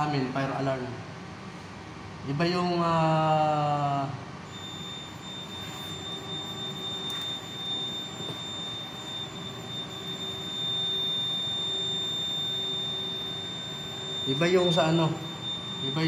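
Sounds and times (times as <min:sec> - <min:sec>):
high-pitched alarm buzzer tone: 0:04.5 - 0:16.0.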